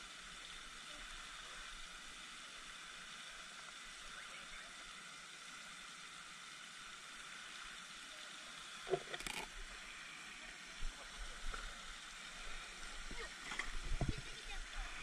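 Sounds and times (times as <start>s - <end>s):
faint outdoor hiss: 0.0s - 15.0s.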